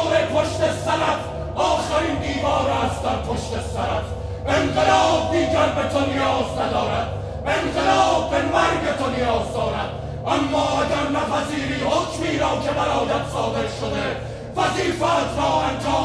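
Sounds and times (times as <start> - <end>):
men chanting in unison: 0.0 - 16.0
steady low hum: 0.0 - 16.0.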